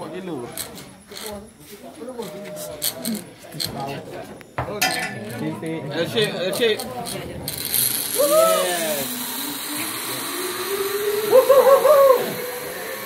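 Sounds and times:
zip-line trolley whine: 0:07.5 - 0:13.0
person whooping: 0:08.2 - 0:09.1, 0:11.1 - 0:12.6.

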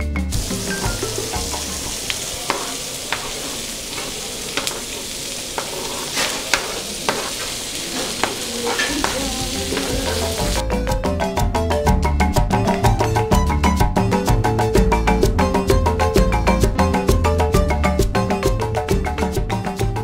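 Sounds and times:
vegetables sizzling in frying pan: 0:00.3 - 0:10.6.

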